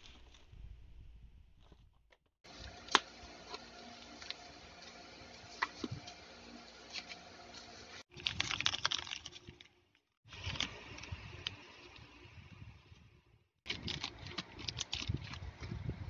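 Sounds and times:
plastic bag crinkling: 8.1 - 12.0, 13.7 - 15.7
photo prints rustling: 13.7 - 15.8.

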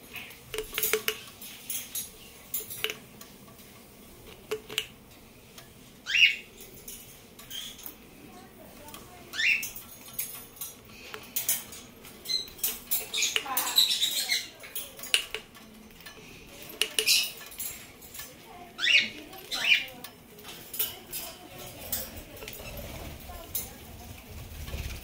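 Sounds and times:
parrot gnawing coconut shell: 0.5 - 2.0, 2.6 - 5.0.

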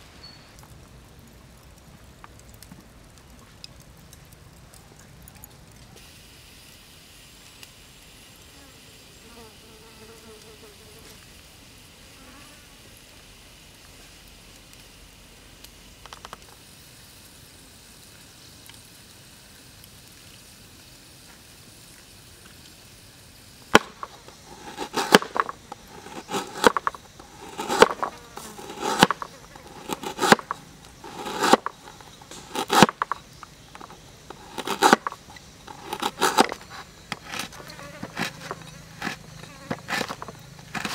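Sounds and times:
faint buzz and hiss: 0.0 - 40.9
cleaver chopping on wooden board: 23.8 - 33.2, 33.8 - 36.6, 37.2 - 40.9.

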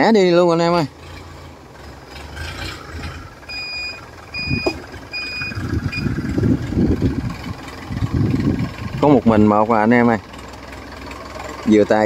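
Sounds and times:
boat engine running: 0.9 - 12.0
short electronic beeps: 3.5 - 6.2.

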